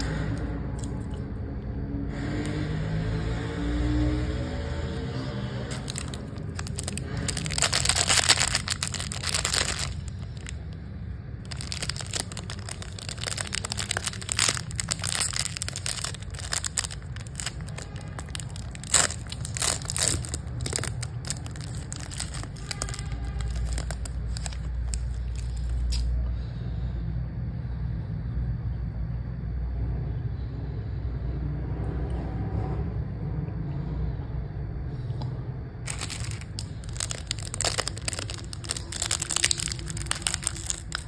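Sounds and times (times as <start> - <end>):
steady low hum: 0.0 - 41.0
plastic wrapper crinkling: 5.6 - 10.8, 11.4 - 26.1, 35.9 - 41.0.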